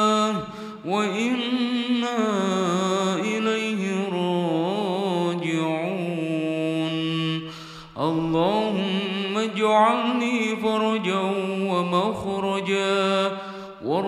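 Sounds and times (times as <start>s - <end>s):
solo voice chanting: 0.0s - 14.0s.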